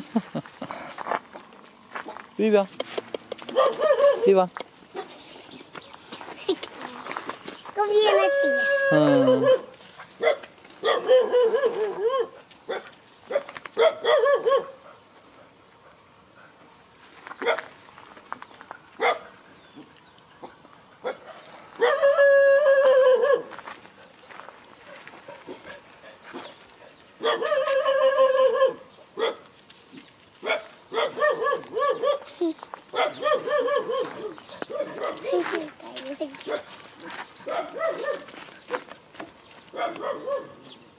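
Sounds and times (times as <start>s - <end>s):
dog barking: 3.5s - 4.3s, 8.1s - 14.9s, 19.0s - 19.3s, 21.0s - 22.2s, 22.9s - 23.5s, 27.2s - 29.4s, 30.4s - 32.3s, 32.9s - 35.4s, 36.4s - 36.7s, 37.4s - 38.3s, 39.7s - 40.6s.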